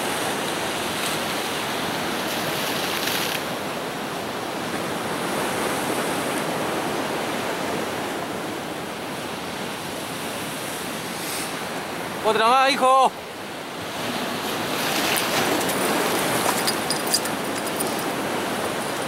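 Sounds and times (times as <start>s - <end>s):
surf breaking over rocks: 13.8s - 19.0s.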